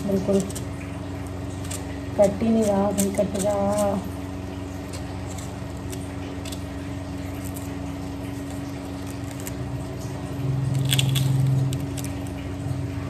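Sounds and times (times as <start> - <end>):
steady hum: 0.0 - 13.0
knife cutting onion: 1.6 - 4.1.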